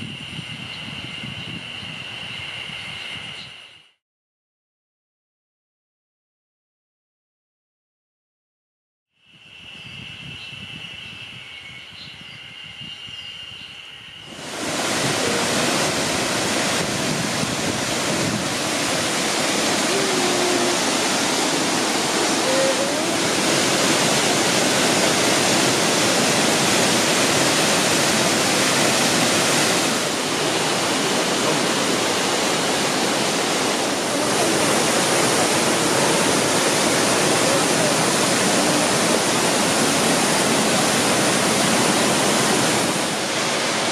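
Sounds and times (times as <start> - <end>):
waterfall rushing over rock: 14.3 - 43.9.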